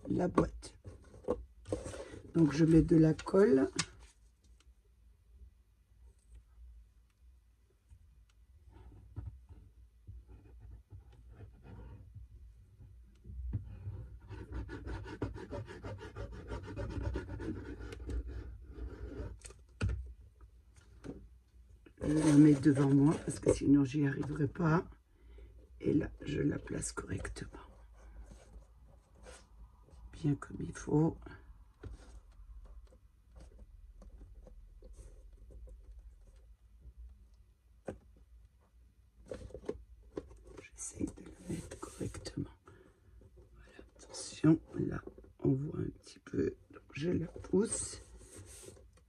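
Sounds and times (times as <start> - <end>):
paper rustling: 22.0 - 23.6.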